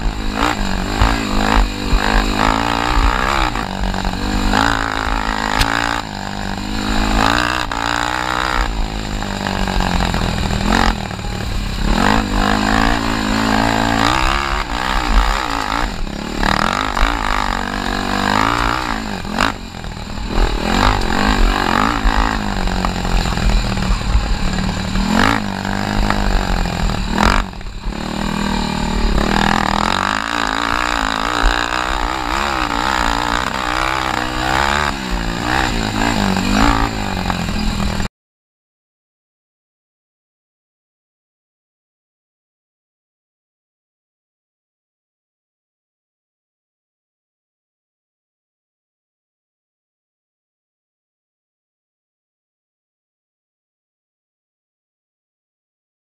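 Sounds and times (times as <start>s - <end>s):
atv engine revving: 0.0s - 38.1s.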